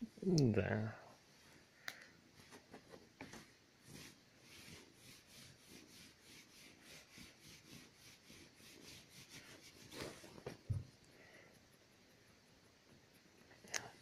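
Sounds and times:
soft thump: 10.7 - 10.9.

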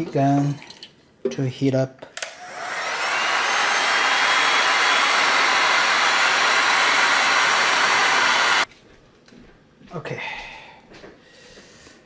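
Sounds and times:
heat gun blowing air: 2.2 - 8.7.

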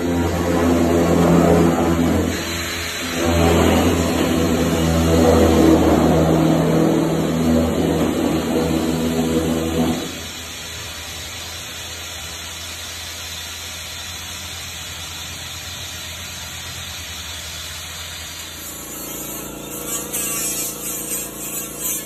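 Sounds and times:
compressed air hissing from pneumatic tool: 10.0 - 22.0.

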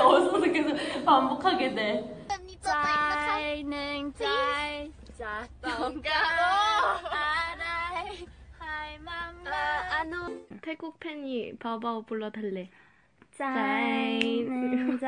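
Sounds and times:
young women singing: 2.5 - 10.5.

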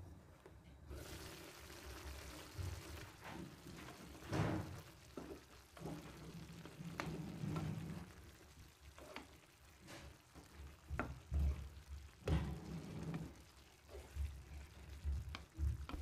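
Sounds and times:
wooden spatula scraping pan: 1.0 - 16.0
spatula knocking against pan: 14.0 - 16.0.

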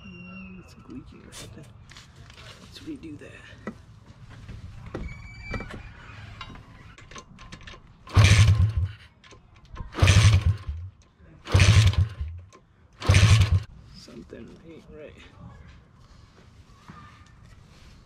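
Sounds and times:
engine turning over without firing: 8.0 - 9.0, 9.8 - 13.7.

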